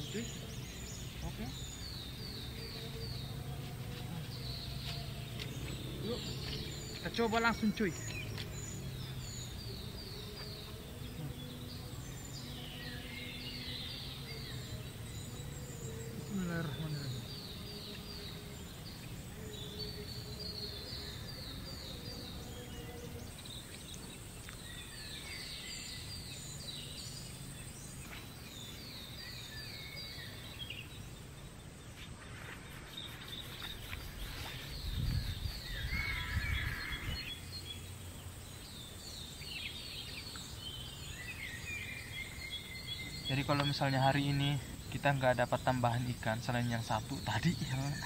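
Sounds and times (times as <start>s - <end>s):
bird with downward-sliding notes: 0.0s - 48.0s
insect high whine: 0.0s - 48.0s
low rumble of wind on microphone: 33.3s - 39.2s.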